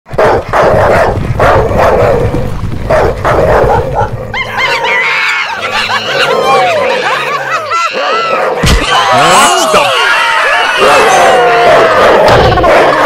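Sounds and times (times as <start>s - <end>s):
cartoon dog barking: 11.5s - 13.0s.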